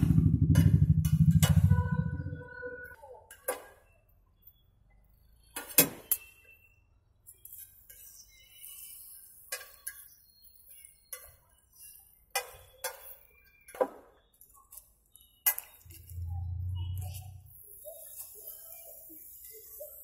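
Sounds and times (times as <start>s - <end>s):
low hum: 0.0s - 2.5s, 15.9s - 17.7s.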